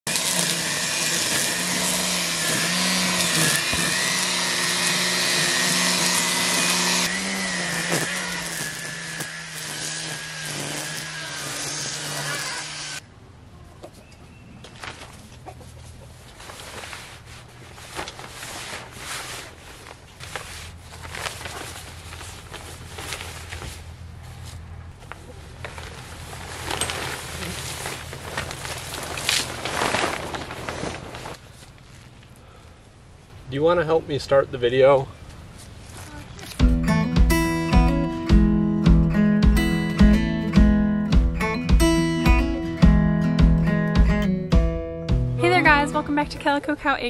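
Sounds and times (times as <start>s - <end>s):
string trimmer cutting grass: 0.1s - 13.0s
fabric cover rustling: 14.8s - 32.3s.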